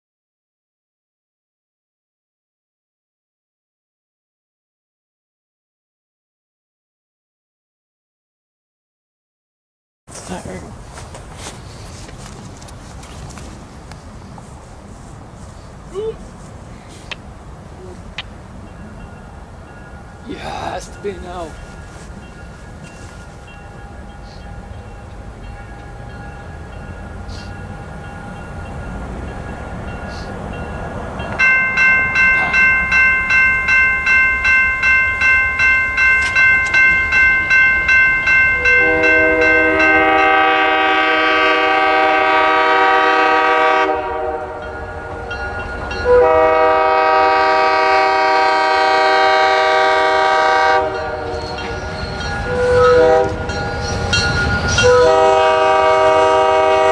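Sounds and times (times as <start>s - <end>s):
railroad crossing bell ringing: 18.2s - 56.9s
train horn blasts: 38.6s - 56.9s.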